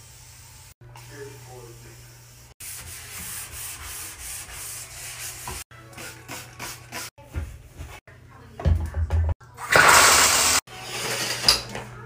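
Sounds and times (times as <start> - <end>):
scrub brush rubbing bathtub: 2.6 - 8.0.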